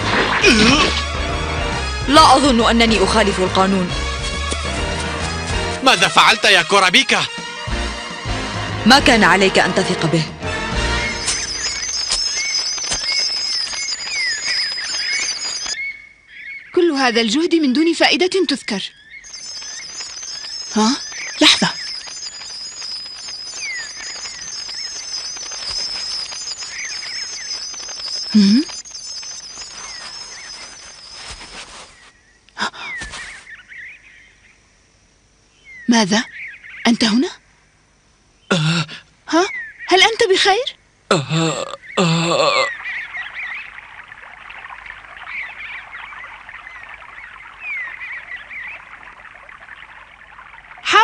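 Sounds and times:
high wavering chirping trill: 0:10.8 - 0:16.0, 0:19.2 - 0:32.1, 0:42.8 - 0:51.0
falling bird-like chirps: 0:10.8 - 0:17.0, 0:18.4 - 0:34.4, 0:41.8 - 0:51.0
sharp clicks: 0:11.2 - 0:15.8, 0:19.3 - 0:31.6.

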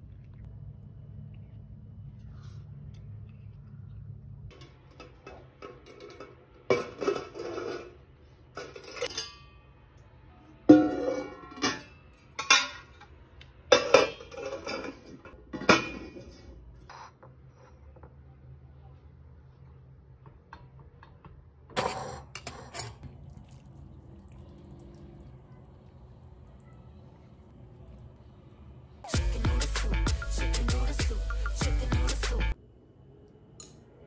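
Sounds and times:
metal pot lid clanking: 0:04.5 - 0:08.0
kitchenware clinking: 0:04.5 - 0:09.6, 0:10.7 - 0:17.2, 0:20.5 - 0:23.2.

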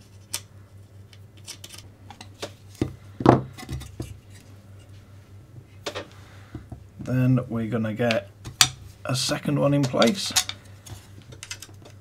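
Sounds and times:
plastic and metal parts clicking: 0:11.3 - 0:12.0.

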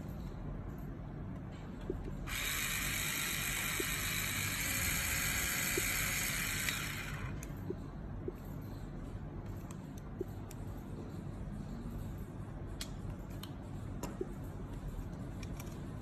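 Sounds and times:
small motor high buzz: 0:02.3 - 0:07.4.

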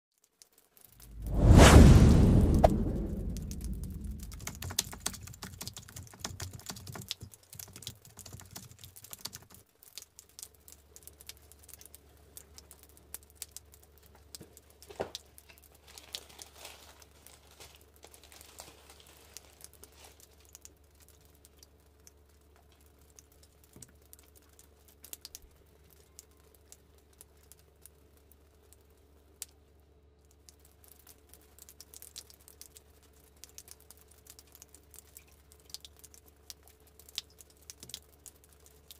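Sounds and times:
loud low sound: 0:01.1 - 0:05.0
steady low hum: 0:01.1 - 0:05.4
small taps and clicks: 0:04.6 - 0:15.6
tissue paper crinkling: 0:15.8 - 0:20.4.

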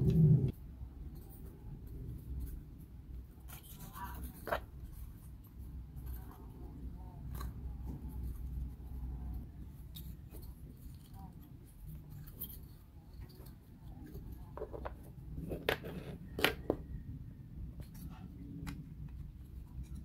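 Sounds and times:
steady low hum: 0:00.0 - 0:04.1.

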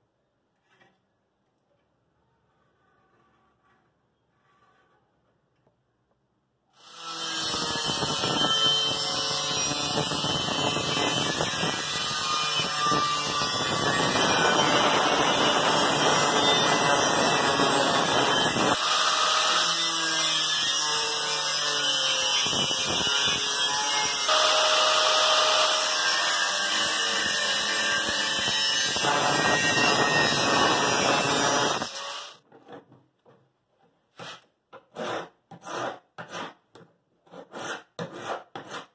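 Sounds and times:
angle grinder cutting metal: 0:06.8 - 0:32.4.

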